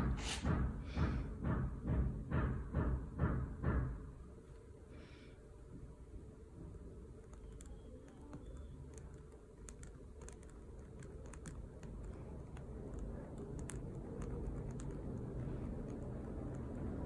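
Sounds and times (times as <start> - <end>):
low steady rumble: 4.1 - 17.0.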